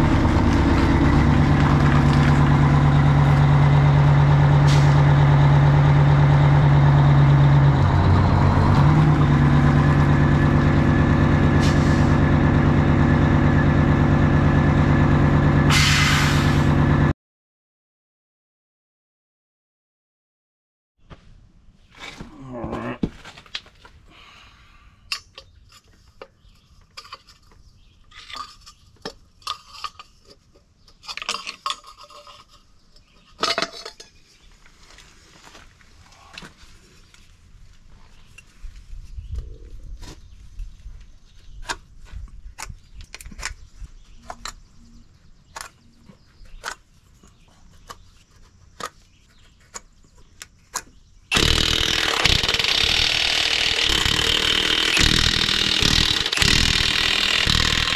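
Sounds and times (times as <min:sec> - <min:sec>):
metal tools clinking and scraping: 0:25.2 - 0:34.4
impact wrench running: 0:51.3 - 0:57.9.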